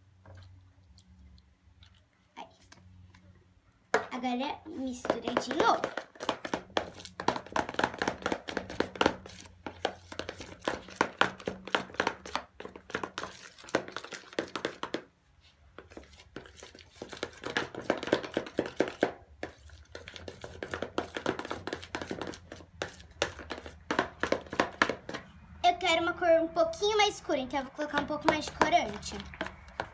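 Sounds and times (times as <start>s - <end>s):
utensil scraping plastic bowl: 4.8s - 14.9s, 15.8s - 25.3s.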